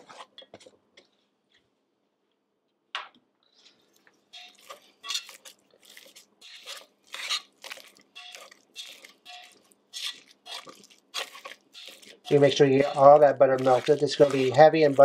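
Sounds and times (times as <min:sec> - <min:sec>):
metal masher clinking against pan: 0:08.2 - 0:15.0.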